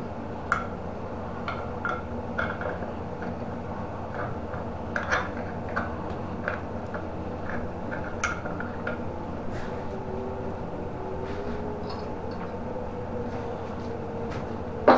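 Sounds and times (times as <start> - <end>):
steady background hum: 0.0 - 14.9.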